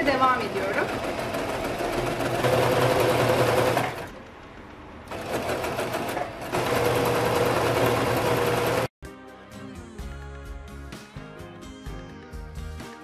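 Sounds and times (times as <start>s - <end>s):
sewing machine stitching: 0.0s - 4.1s, 5.1s - 8.9s.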